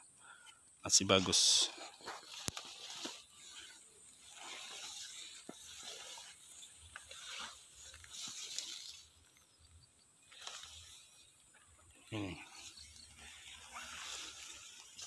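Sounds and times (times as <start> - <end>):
rustling plants: 0.3 - 15.0.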